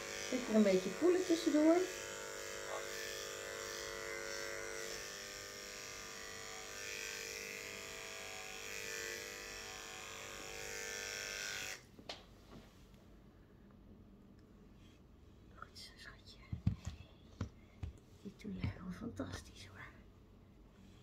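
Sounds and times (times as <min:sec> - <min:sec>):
electric clippers humming: 0:00.0 - 0:11.9.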